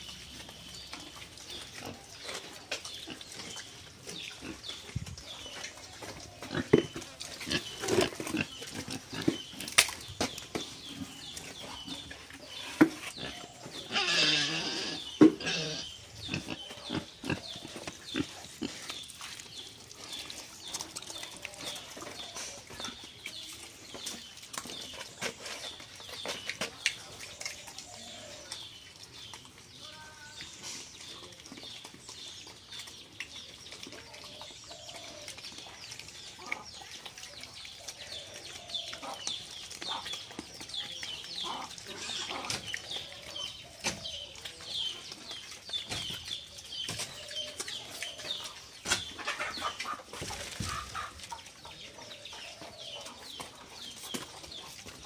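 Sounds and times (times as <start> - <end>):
pigs grunting: 10.8 - 19.0, 33.9 - 45.8.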